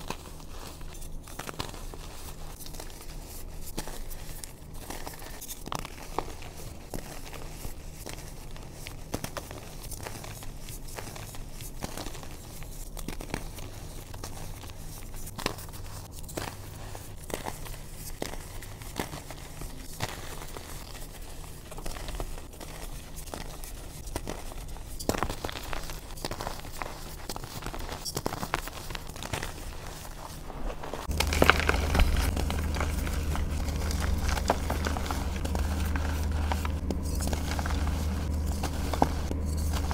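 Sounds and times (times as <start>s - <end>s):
chalk crunching between fingers: 0.0s - 39.9s.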